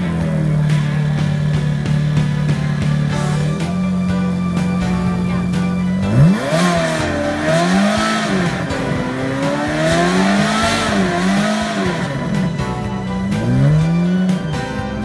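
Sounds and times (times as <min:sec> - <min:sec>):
sports car engine revving: 0:00.0 - 0:15.0.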